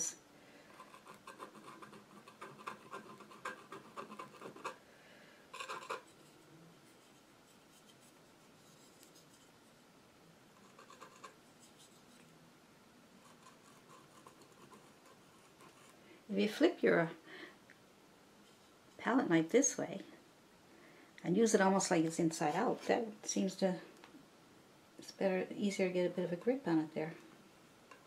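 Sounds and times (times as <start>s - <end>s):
palette knife scraping paint: 0.7s - 4.8s, 5.5s - 9.5s, 10.6s - 12.3s, 13.2s - 16.0s.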